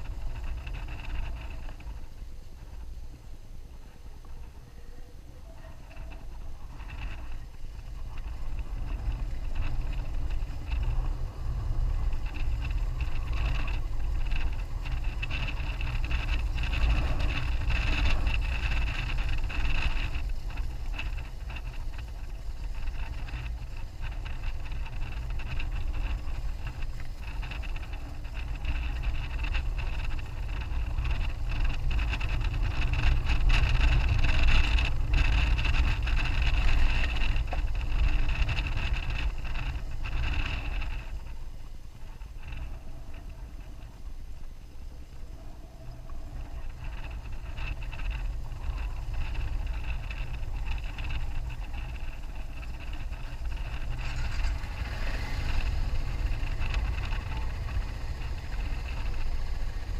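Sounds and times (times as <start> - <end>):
motorcycle engine running: 0.0 - 59.9
wind buffeting microphone: 0.0 - 59.9.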